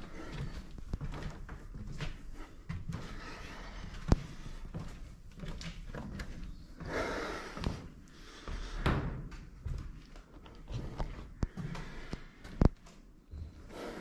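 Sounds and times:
footsteps on hard floor: 0:00.0 - 0:13.9.

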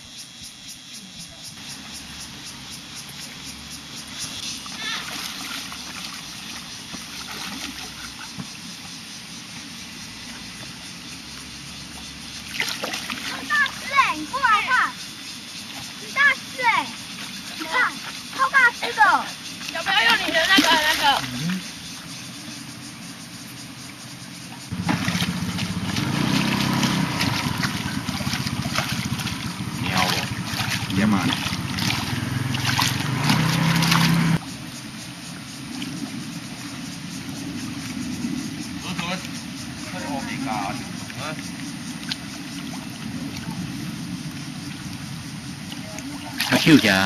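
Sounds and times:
fish splashing and thrashing: 0:04.3 - 0:08.8, 0:12.2 - 0:14.5, 0:15.4 - 0:21.7, 0:24.7 - 0:34.4, 0:40.8 - 0:47.0.

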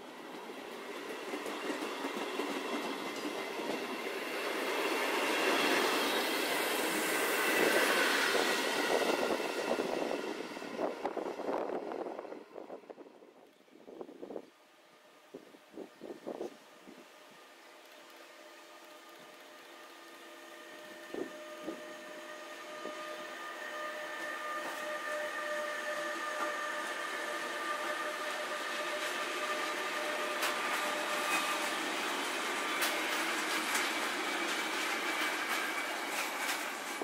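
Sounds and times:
electric locomotive whine: 0:00.0 - 0:37.0
wheels clicking over rail joints: 0:32.4 - 0:37.0.

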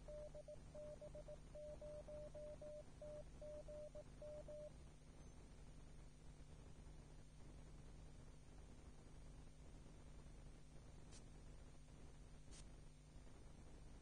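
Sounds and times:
morse code tone: 0:00.0 - 0:04.7
low steady hum: 0:00.0 - 0:14.0.

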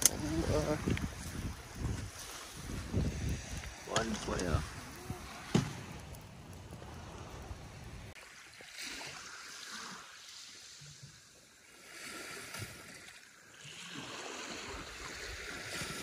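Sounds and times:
surf washing on beach: 0:00.0 - 0:16.0.

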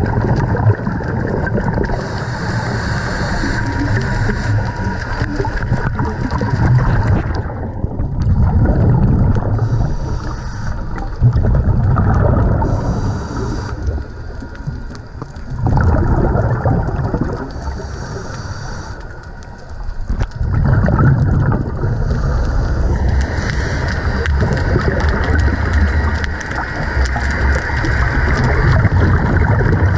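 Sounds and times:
underwater bubbles rumbling: 0:00.0 - 0:29.9.

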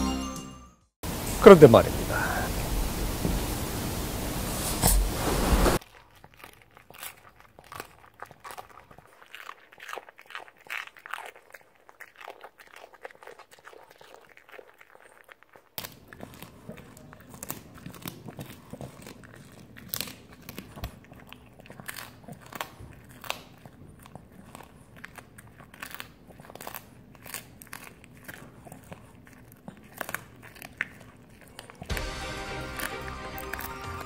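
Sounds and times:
music: 0:00.0 - 0:00.9, 0:31.9 - 0:34.0
dog chewing food: 0:05.8 - 0:34.0
teeth clicking: 0:05.9 - 0:34.0.

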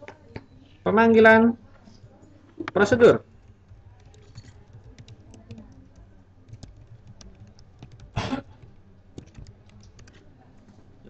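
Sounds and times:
keyboard key clicks: 0:03.4 - 0:10.2.

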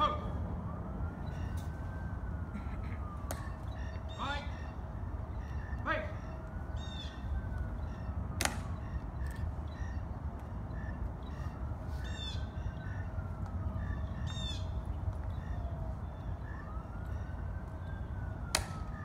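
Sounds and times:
distant siren wailing: 0:00.0 - 0:19.0.

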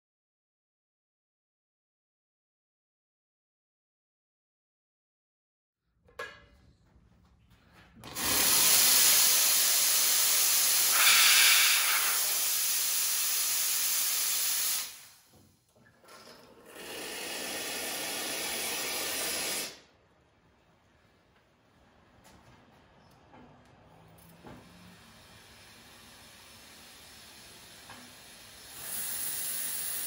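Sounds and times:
espresso machine steam hissing: 0:08.2 - 0:15.3, 0:16.7 - 0:19.8, 0:24.6 - 0:30.0.

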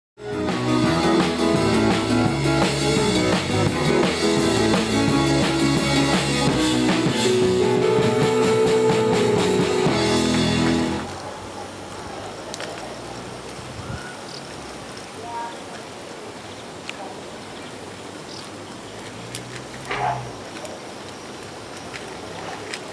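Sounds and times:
rock music with drums and guitar: 0:00.2 - 0:11.1
steady background hiss: 0:07.0 - 0:22.9.

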